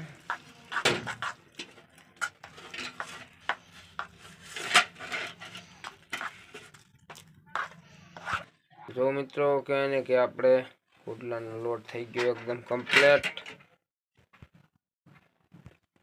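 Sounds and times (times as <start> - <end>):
hand mixing batter in a bowl: 0.0 - 9.2
knocks and scrapes against metal bowl: 0.2 - 8.5.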